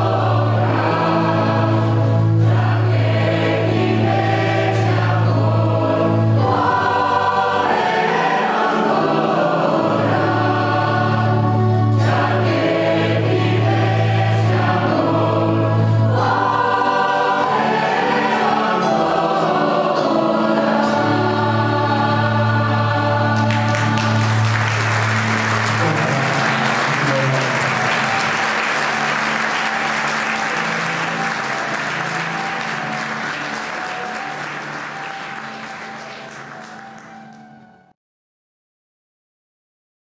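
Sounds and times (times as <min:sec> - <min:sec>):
mixed choir singing: 0:00.0 - 0:37.3
audience applause: 0:23.4 - 0:37.5.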